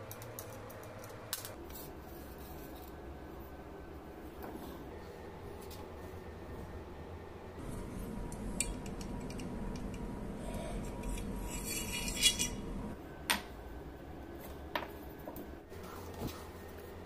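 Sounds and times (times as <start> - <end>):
steady low hum: 0.0 - 17.0
metal scrape: 10.8 - 12.7.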